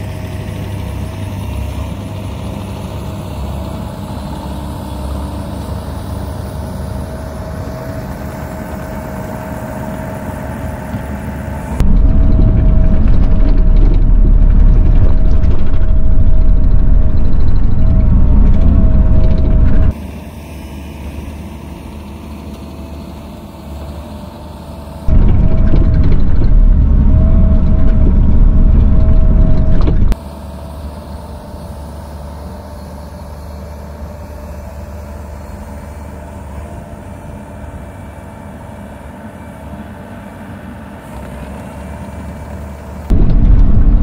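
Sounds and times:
excavator diesel engine running: 0:00.0 - 0:30.8, 0:34.3 - 0:44.0
steady whine: 0:10.3 - 0:20.0, 0:25.1 - 0:30.2, 0:43.1 - 0:44.0.

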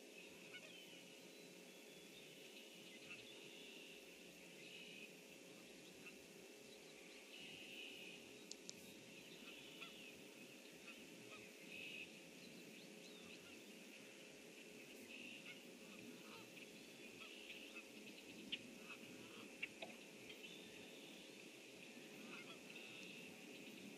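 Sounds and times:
distant bird calls: 0:00.0 - 0:23.9
faint steady hum: 0:00.0 - 0:23.9
small sharp clicks: 0:08.4 - 0:08.8.

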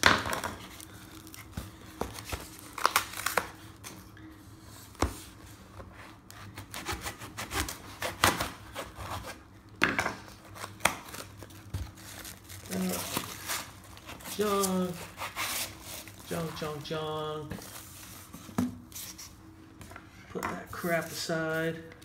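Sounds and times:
tape tearing: 0:00.0 - 0:03.6, 0:10.4 - 0:16.7
cardboard crinkling: 0:10.3 - 0:19.3.

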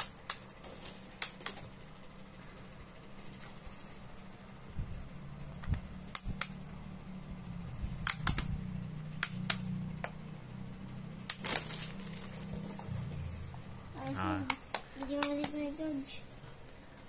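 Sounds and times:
steady low hum: 0:00.0 - 0:17.0
plastic handling: 0:11.3 - 0:12.9.

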